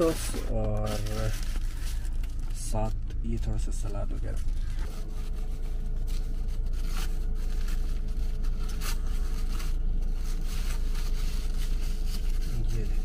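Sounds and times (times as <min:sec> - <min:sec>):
food wrapper crinkling and tearing: 0:00.0 - 0:03.4
low hum inside a car: 0:00.0 - 0:13.0.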